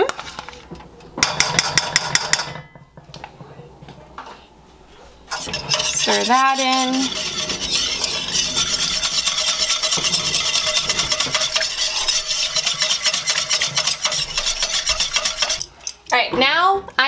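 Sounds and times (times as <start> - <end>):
wire whisk scraping a metal pan: 5.3 - 16.2.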